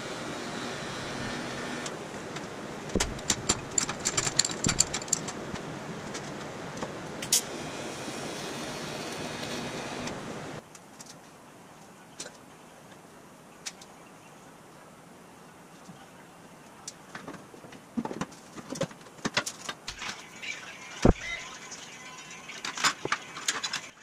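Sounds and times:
arc welder crackling: 7.2 - 10.6.

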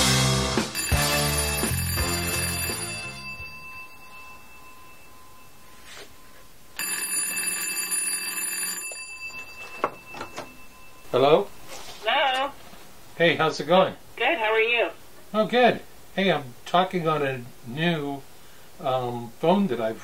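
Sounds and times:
telephone bells ringing: 0.6 - 12.6.

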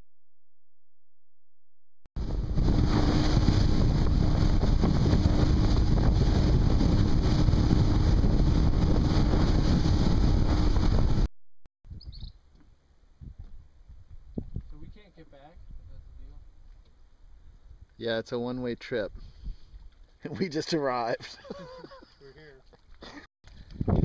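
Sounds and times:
motorboat engine hum: 2.2 - 11.3
wind rush on microphone: 2.2 - 11.3, 11.9 - 12.3, 13.2 - 16.4, 19.1 - 19.9, 23.5 - 24.0.

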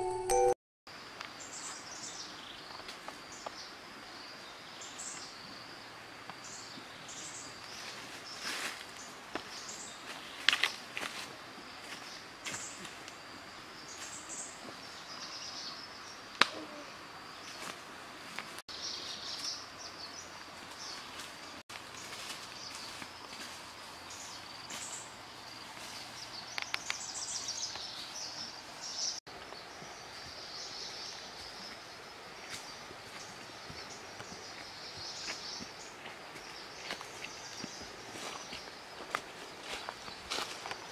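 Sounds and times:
footsteps crunching on dry leaves: 7.7 - 13.0, 20.7 - 26.3, 32.5 - 40.9.

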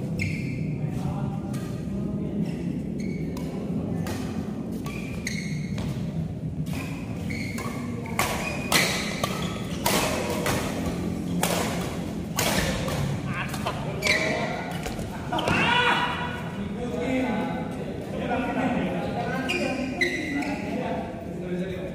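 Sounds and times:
shoes squeaking on court: 0.0 - 1.8, 2.4 - 15.1, 19.4 - 20.8
racket hitting shuttlecock: 3.2 - 5.2, 6.7 - 15.6.

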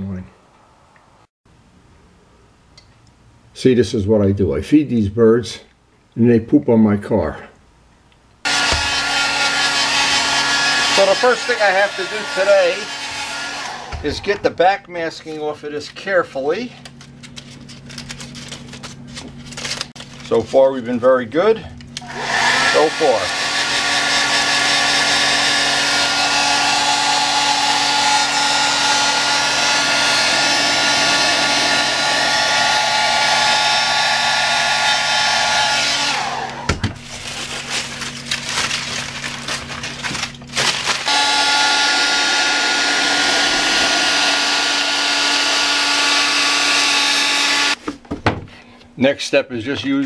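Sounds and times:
hair dryer blowing: 8.5 - 14.4, 22.0 - 36.8, 40.9 - 47.8
hair dryer winding down: 8.5 - 14.4, 22.0 - 36.8, 40.9 - 47.8.

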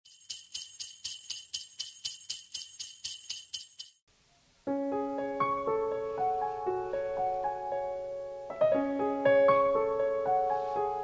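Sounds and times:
jingle bells shaken: 0.0 - 4.1
slow piano chords: 4.7 - 11.0.

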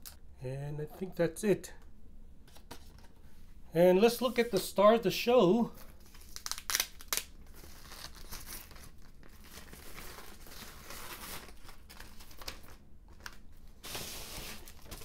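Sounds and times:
plastic wrapper crinkling: 5.8 - 15.0.

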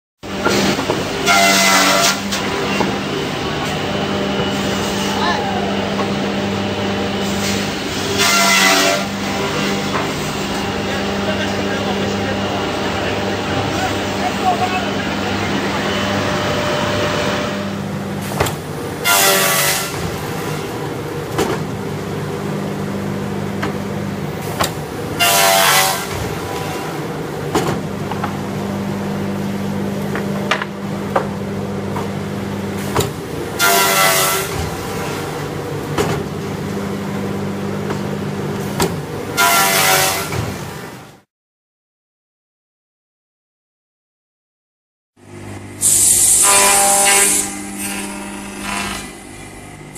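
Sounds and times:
saw motor humming: 45.3 - 49.9
saw cutting wood with ringing whine: 45.7 - 49.9.

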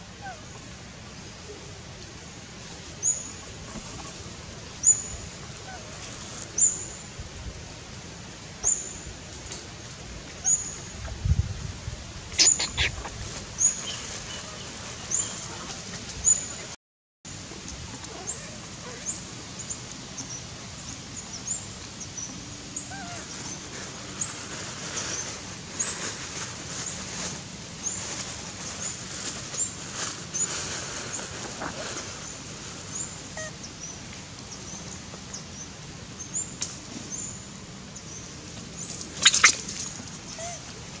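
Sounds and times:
steady outdoor hiss: 0.0 - 41.0
high-pitched bird chirps: 12.4 - 13.0, 39.2 - 39.6.

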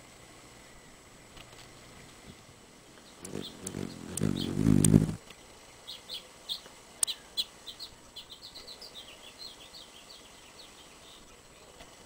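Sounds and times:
hummingbird chirping: 3.0 - 11.8
sharp click: 3.2 - 5.2.

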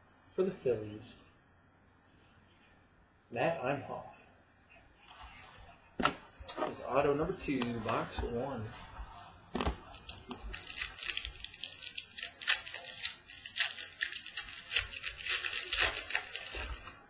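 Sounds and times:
plastic packaging crinkling: 9.6 - 17.0.

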